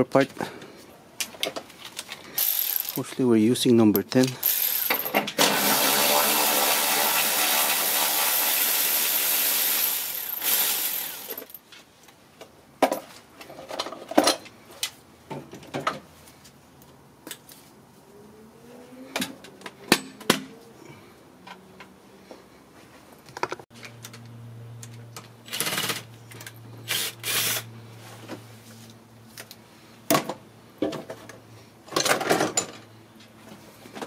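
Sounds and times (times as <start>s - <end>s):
tool and parts clinking: 1.3s - 3.1s, 3.8s - 5.6s, 10.1s - 11.8s
power ratchet spinning: 2.4s - 3.0s, 4.4s - 11.6s, 25.4s - 26.1s, 26.8s - 27.7s.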